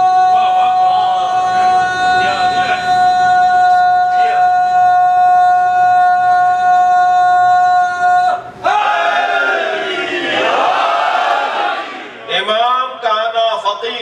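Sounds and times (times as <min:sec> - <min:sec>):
loud steady held tone: 0:00.0 - 0:08.8.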